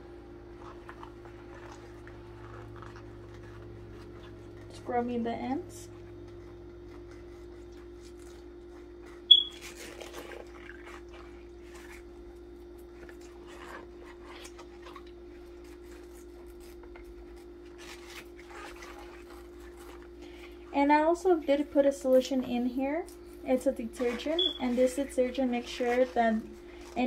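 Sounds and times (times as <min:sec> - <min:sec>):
steady hum: 0:00.0 - 0:27.0
sharp high squeak: 0:09.3 - 0:09.6, 0:24.4 - 0:24.7
brush scrubbing under water: 0:17.6 - 0:21.1, 0:23.8 - 0:27.0.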